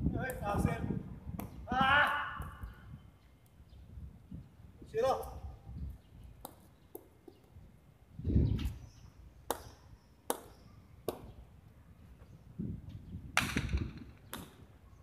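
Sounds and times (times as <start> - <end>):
ball striking concrete walls: 9.4 - 11.4, 13.4 - 14.7.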